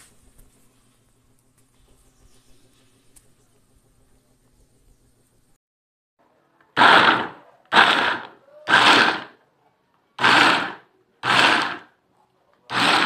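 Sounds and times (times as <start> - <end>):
food processor chopping in pulses: 6.7 - 9.4, 10.2 - 12.0, 12.7 - 13.0.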